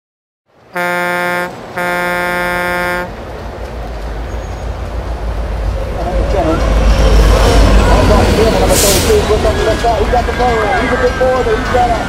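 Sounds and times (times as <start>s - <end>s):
train horn blasts: 0.7s - 3.2s.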